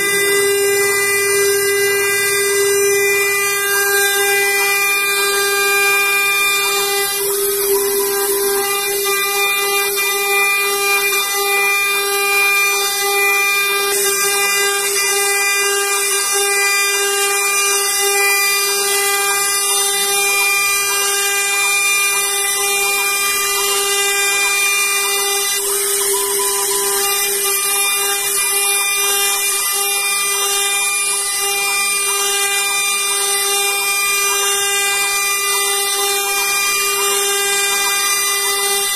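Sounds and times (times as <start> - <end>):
milling machine spindle whine: 0.0 - 38.9.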